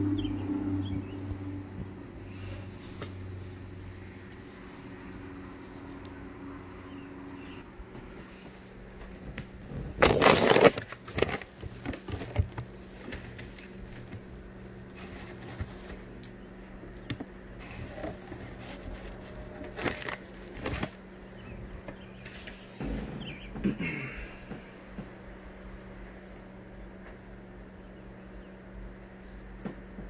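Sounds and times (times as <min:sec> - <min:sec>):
faint steady hum: 0:00.0 - 0:30.0
handling scrapes and rustles: 0:02.2 - 0:05.0, 0:08.1 - 0:16.0, 0:17.6 - 0:21.0.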